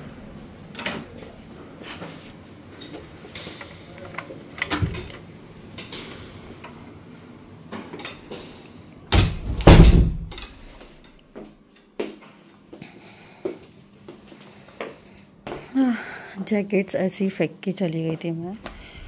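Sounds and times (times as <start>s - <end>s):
door shutting thuds: 9.1s - 10.5s.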